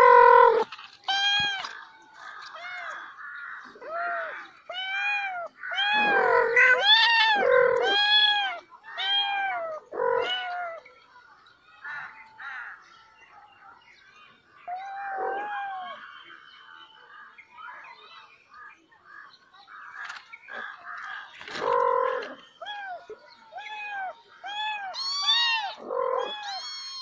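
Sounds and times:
kittens meowing: 3.7s - 10.8s, 21.5s - 27.0s.

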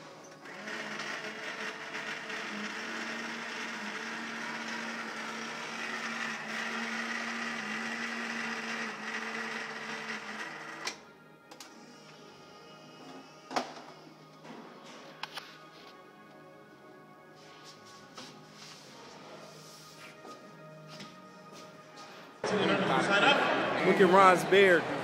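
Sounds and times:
electric motor humming: 0.4s - 11.0s.

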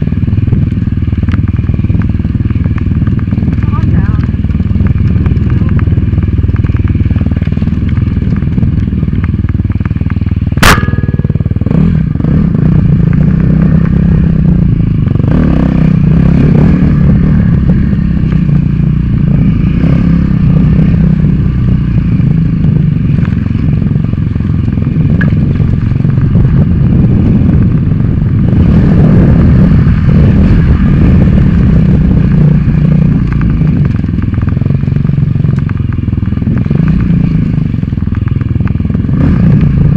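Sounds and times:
clattering over rough trail: 0.0s - 39.9s
dirt bike engine running hard: 0.0s - 39.9s
sharp knock: 10.6s - 11.6s.

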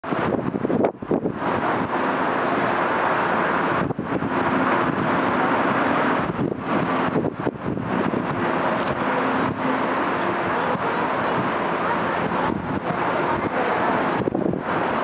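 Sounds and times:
helicopter rotor drone: 0.0s - 15.0s
wind buffeting microphone: 0.0s - 15.0s.

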